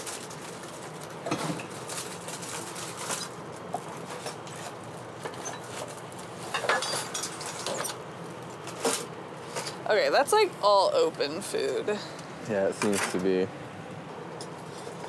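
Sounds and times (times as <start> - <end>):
rummaging through trash: 0.0 - 8.0.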